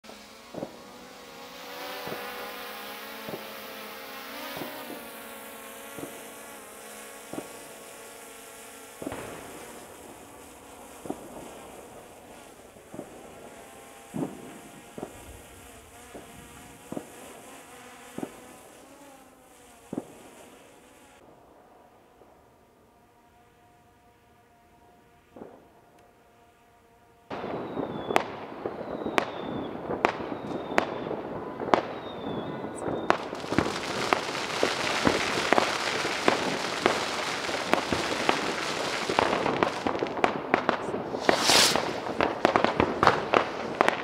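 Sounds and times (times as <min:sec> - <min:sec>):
firecracker bangs: 0:27.3 - 0:44.0.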